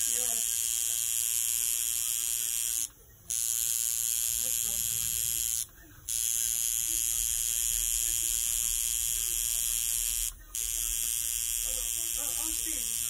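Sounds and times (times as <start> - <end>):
electric motor tool buzzing: 0.0 - 13.0.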